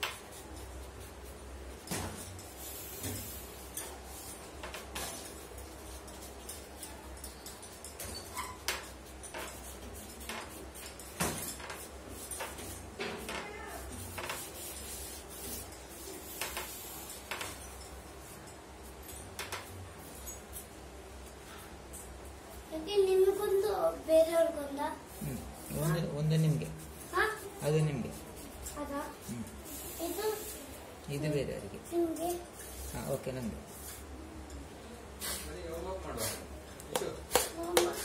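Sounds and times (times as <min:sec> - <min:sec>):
charcoal scratchy strokes: 0:13.7 - 0:17.2, 0:25.0 - 0:30.8.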